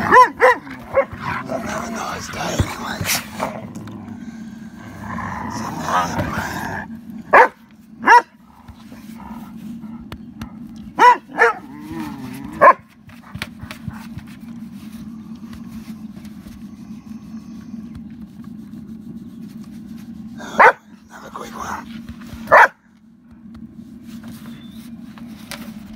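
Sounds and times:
dogs barking: 0.0s - 3.5s, 7.2s - 14.1s, 20.4s - 21.0s, 22.4s - 22.9s
steady low rumble: 0.0s - 25.9s.

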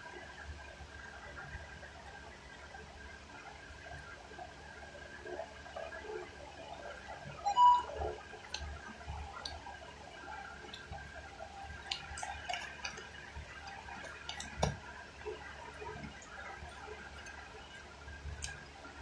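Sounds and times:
brief high-pitched tone: 7.5s - 8.0s.

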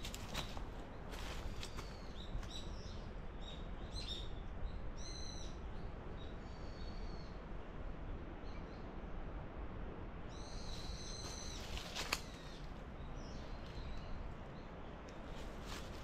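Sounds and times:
birds calling: 10.4s - 16.0s.

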